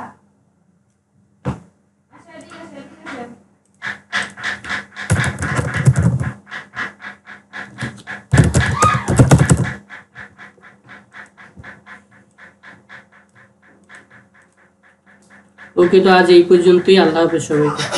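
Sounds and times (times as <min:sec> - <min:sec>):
keyboard typing clicks: 0:05.1 - 0:06.4.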